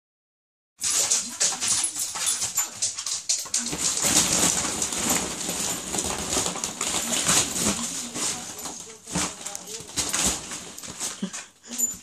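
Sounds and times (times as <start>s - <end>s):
plastic balls clattering: 0.8s - 12.0s.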